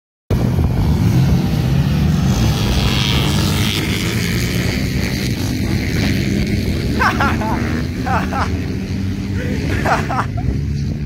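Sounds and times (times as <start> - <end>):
atv engines droning: 0.3 - 11.0.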